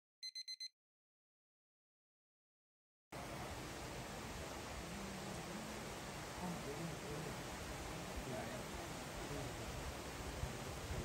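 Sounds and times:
outdoor background hiss: 0:03.2 - 0:11.0.

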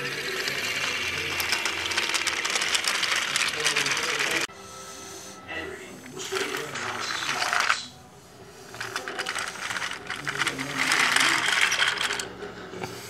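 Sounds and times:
toy train motor clicking rattle: 0:00.0 - 0:04.5, 0:08.7 - 0:12.3.

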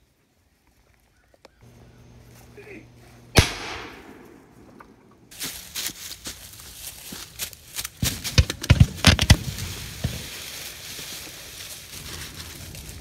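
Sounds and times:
footsteps crunching through dry leaves: 0:00.0 - 0:03.3, 0:04.1 - 0:13.0
rustle of leaves: 0:05.3 - 0:08.3, 0:09.0 - 0:13.0.

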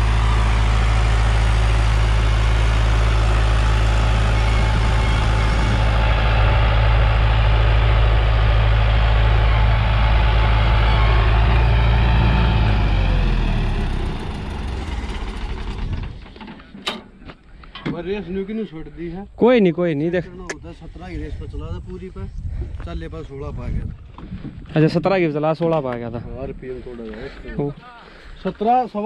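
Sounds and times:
tractor diesel engine running: 0:00.0 - 0:17.7.

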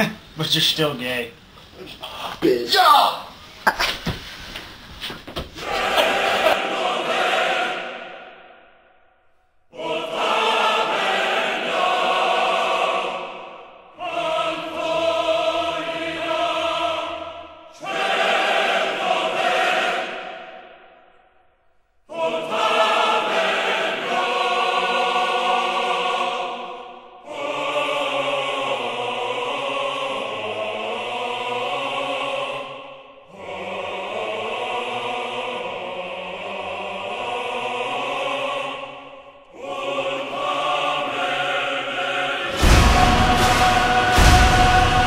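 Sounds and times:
choir singing held chords: 0:05.5 - 0:45.0
loud sudden crash: 0:42.5 - 0:45.0.

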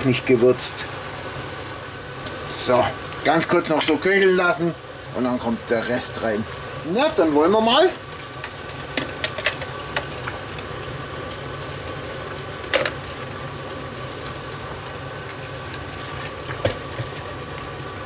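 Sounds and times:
vegetables sizzling in a pot: 0:00.0 - 0:18.0
broth pouring: 0:04.4 - 0:18.0.

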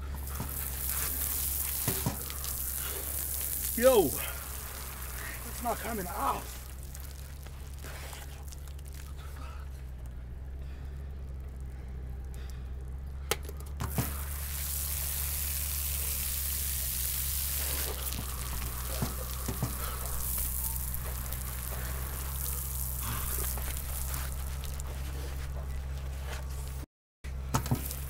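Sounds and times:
shower spraying water on concrete: 0:00.0 - 0:09.1, 0:13.8 - 0:24.9, 0:27.6 - 0:28.0.

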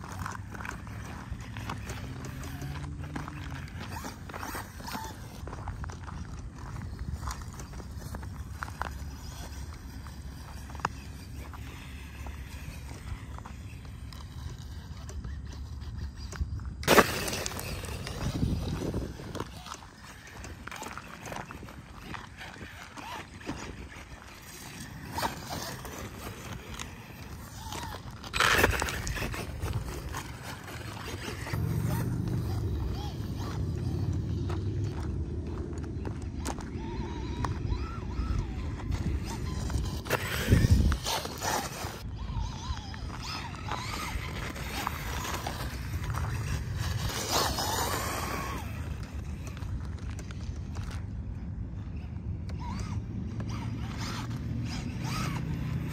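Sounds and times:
toy motorbike electric motor whining: 0:00.0 - 0:55.9
tyres crunching on gravel: 0:00.0 - 0:55.9
wind rumble on microphone: 0:00.0 - 0:55.9.

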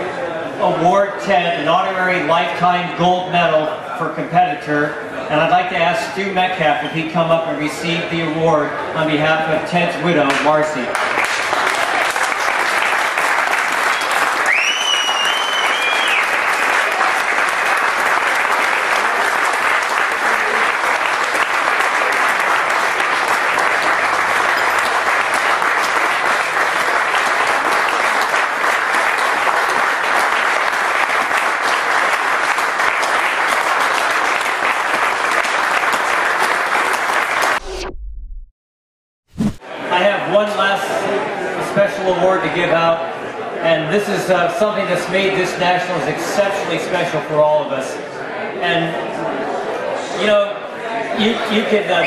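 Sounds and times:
audience applauding: 0:10.9 - 0:37.7
shrill rising whistle: 0:13.9 - 0:16.6.

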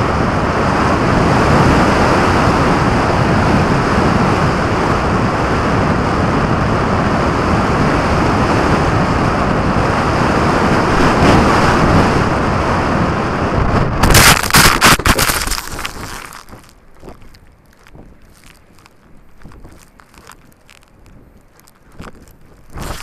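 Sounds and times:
wind roar: 0:00.0 - 0:23.0
knocks and scraping on grass: 0:14.0 - 0:23.0.

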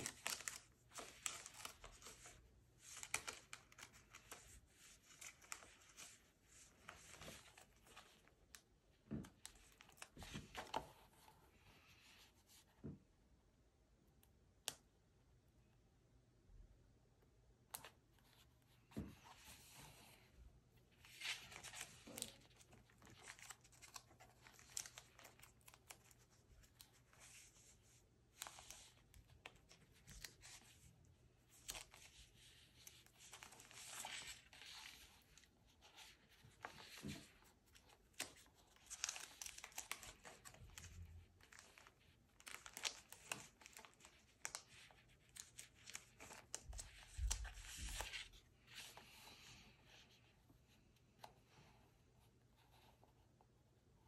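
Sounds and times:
plastic sticker sheet rustling: 0:31.5 - 0:49.2.

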